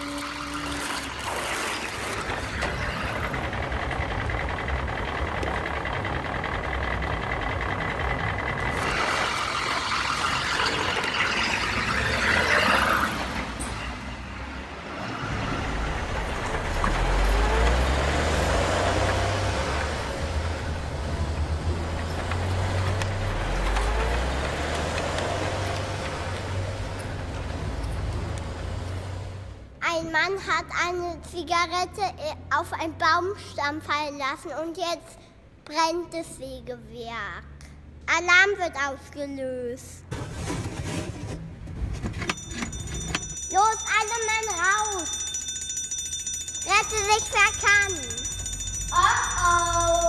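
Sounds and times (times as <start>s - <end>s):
truck engine hum: 0.0s - 30.4s, 41.4s - 50.0s.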